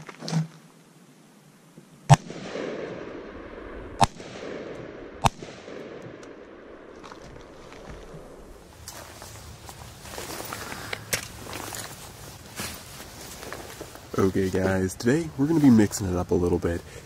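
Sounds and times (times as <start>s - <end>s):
rolling gunshot echo: 2.1s - 6.9s
rifle shots: 2.1s - 7.0s.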